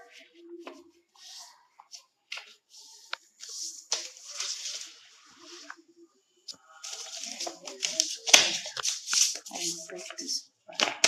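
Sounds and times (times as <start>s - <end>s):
paper crinkles: 0.1s - 5.8s, 6.8s - 11.0s
paper rustling and sliding: 1.2s - 5.8s, 6.8s - 11.0s.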